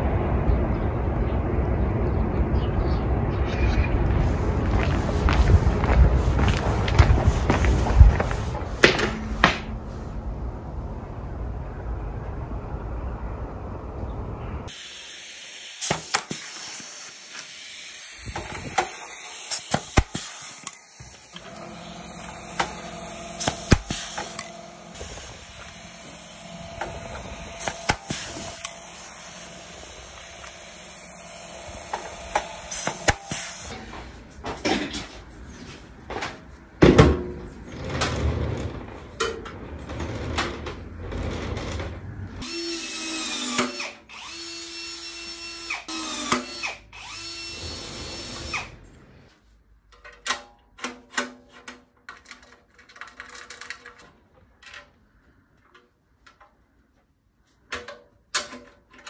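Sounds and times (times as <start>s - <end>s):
power tool running: 14.7s - 33.8s, 42.4s - 48.8s.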